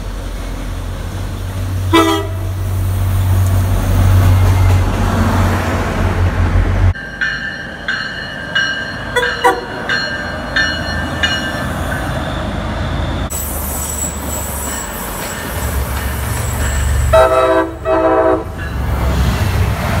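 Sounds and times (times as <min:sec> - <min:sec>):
train horn blasts: 0:01.9 - 0:02.7, 0:09.2 - 0:09.8, 0:17.1 - 0:18.6
train wheel squeal: 0:10.4 - 0:17.5.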